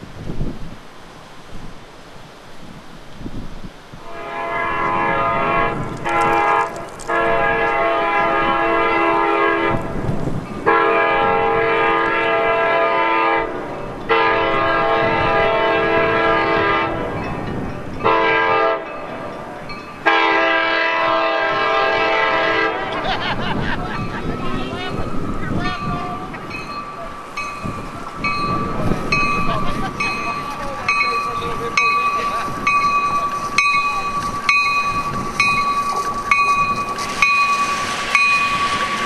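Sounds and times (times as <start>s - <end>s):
low train rumble: 0.0s - 39.0s
locomotive air horn blasts: 4.0s - 10.0s, 10.6s - 17.2s, 18.0s - 23.0s.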